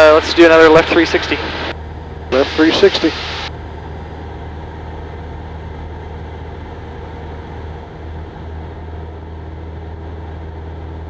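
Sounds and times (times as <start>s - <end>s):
airplane engine droning: 0.0s - 11.0s.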